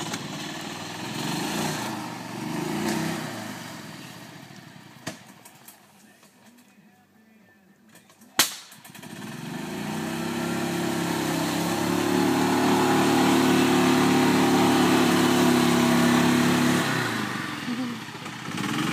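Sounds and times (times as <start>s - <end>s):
golf cart engine under load: 7.9s - 18.9s.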